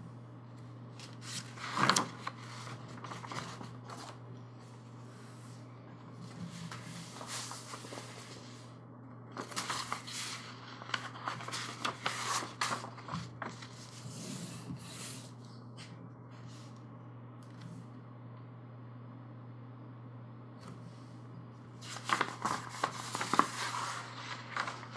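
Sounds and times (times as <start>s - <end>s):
steady low hum: 0.0s - 24.9s
glossy paper rustling and crackling: 1.0s - 4.2s, 6.2s - 8.7s, 9.3s - 14.2s, 21.8s - 24.9s.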